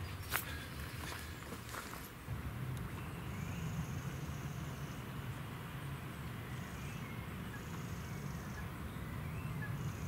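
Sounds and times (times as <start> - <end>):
faint bird chirps: 6.4 - 10.0.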